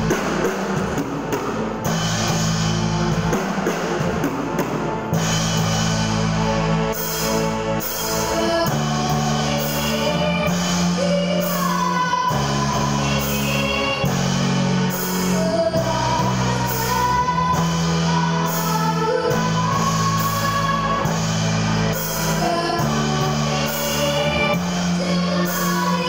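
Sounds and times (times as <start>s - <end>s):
keyboard and electric guitar: 0.0s - 26.0s
girl singing: 8.2s - 26.0s.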